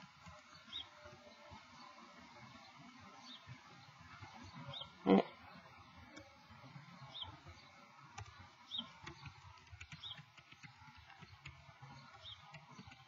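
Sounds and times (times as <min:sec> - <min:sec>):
bird chirping: 0:07.0 - 0:13.0
laptop keyboard typing: 0:09.0 - 0:11.6.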